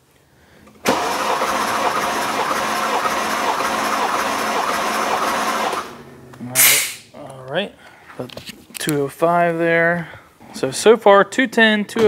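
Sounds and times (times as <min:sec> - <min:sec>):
engine cranking on starter: 0:00.8 - 0:06.0.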